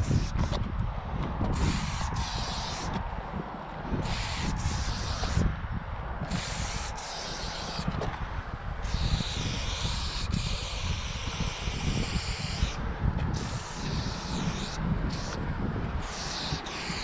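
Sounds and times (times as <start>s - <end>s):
spray paint can hissing: 0.0s - 0.6s, 1.5s - 3.0s, 4.0s - 5.5s, 6.2s - 8.0s, 8.8s - 15.4s, 16.0s - 17.0s.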